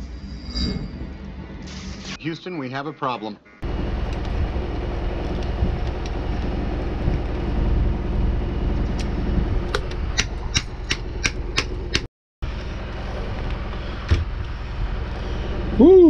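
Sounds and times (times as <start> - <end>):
steady low rumble: 0.0 - 2.2, 3.6 - 16.0
sharp tool clicks: 10.2 - 12.0.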